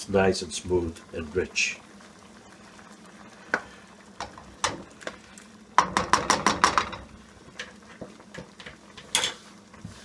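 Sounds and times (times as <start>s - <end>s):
spoon knocking against pan: 5.8s - 7.1s.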